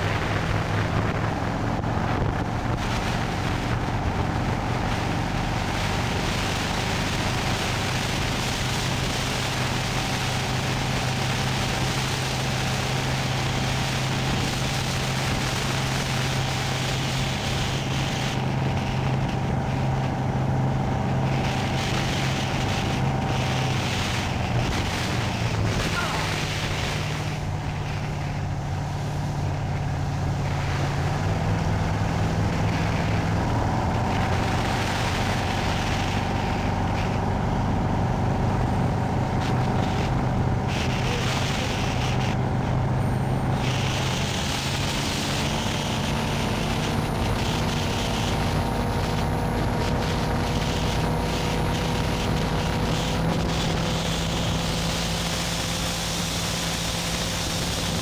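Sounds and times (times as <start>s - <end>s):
motorboat engine droning: 0.0s - 58.0s
rushing water: 0.0s - 58.0s.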